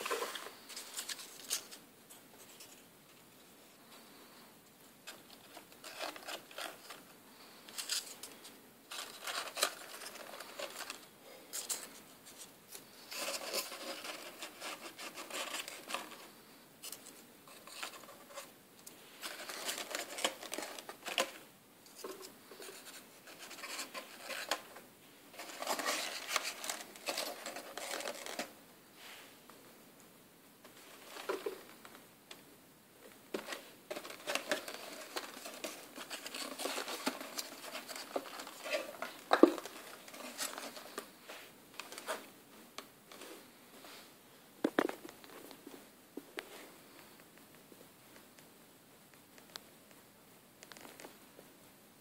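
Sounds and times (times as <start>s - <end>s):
paper rustling and crinkling: 0.0s - 2.9s, 5.0s - 18.5s, 19.1s - 28.6s, 30.6s - 32.0s, 33.3s - 42.3s.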